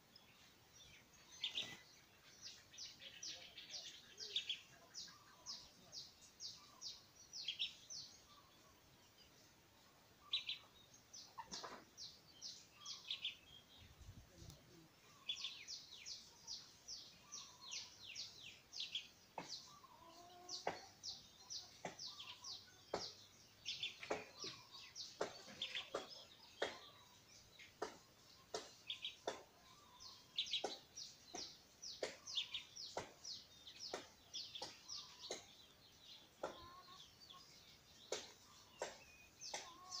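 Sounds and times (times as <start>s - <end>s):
bird calling: 14.8s - 15.9s.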